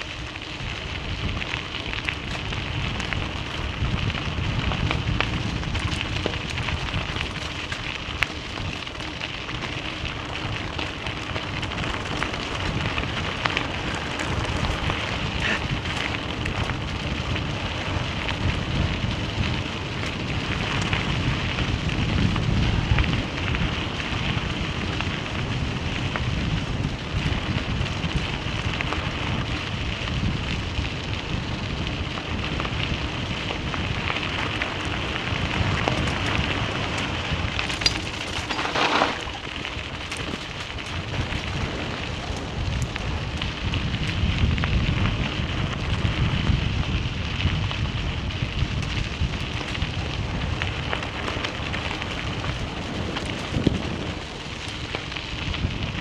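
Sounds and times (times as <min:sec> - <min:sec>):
tyres crunching on gravel: 0:00.0 - 0:24.6, 0:30.8 - 0:46.0
wind rumble on microphone: 0:00.0 - 0:56.0.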